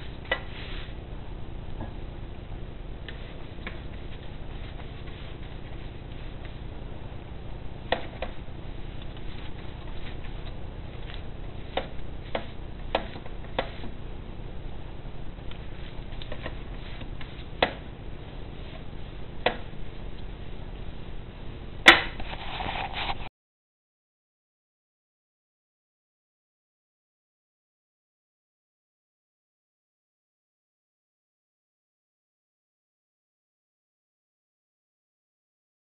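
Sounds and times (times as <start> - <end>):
pastry brush on metal tray: 0.0 - 1.0, 1.9 - 14.0, 15.4 - 20.2, 22.1 - 23.3.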